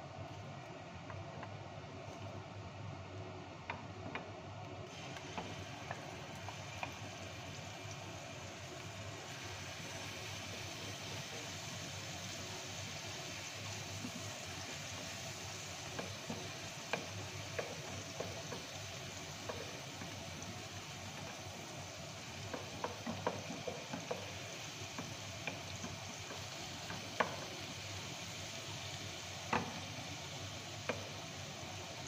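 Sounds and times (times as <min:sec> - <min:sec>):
onion sizzling in hot oil: 0:04.8 - 0:32.0
spatula knocking against pan: 0:15.9 - 0:20.2, 0:22.5 - 0:27.6, 0:29.5 - 0:29.9.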